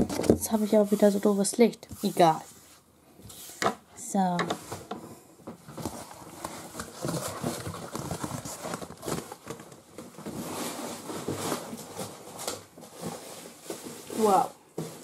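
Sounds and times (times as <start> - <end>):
parcel contents rustling: 5.8 - 15.0.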